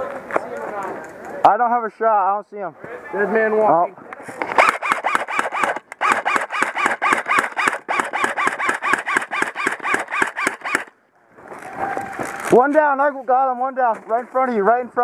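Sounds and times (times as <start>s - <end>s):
airsoft rifle rapid fire: 4.5s - 11.0s.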